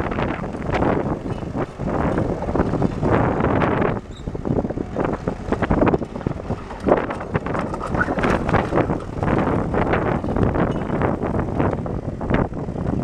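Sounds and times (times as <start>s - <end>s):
diesel engine running: 0.0s - 13.0s
wind buffeting microphone: 0.0s - 13.0s
steel tracks moving: 0.2s - 11.6s.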